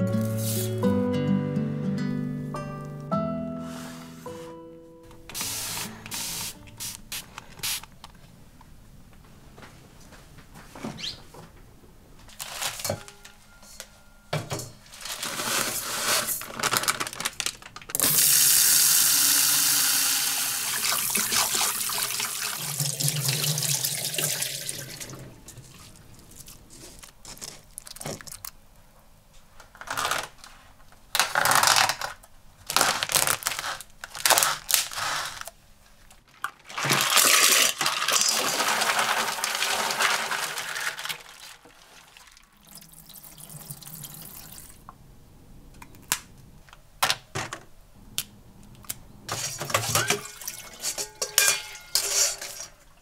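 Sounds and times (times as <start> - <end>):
bowls clinking: 49.4 - 52.9.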